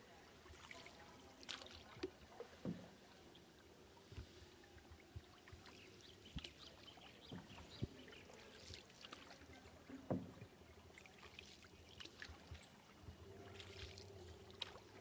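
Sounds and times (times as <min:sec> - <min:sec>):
paddle splashing water: 0:00.0 - 0:15.0
soft knocks on boat: 0:02.5 - 0:03.0, 0:07.2 - 0:08.0, 0:09.9 - 0:10.5.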